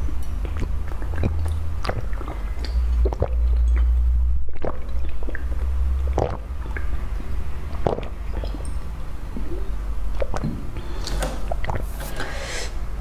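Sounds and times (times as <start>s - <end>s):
wet lip and throat clicks: 0.1s - 8.7s, 10.1s - 10.6s, 11.4s - 11.9s
sipping and swallowing: 0.3s - 12.7s.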